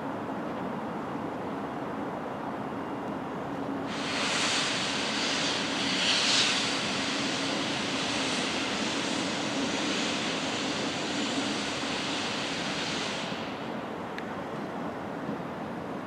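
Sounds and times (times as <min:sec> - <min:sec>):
steam venting hiss: 0:03.8 - 0:14.1.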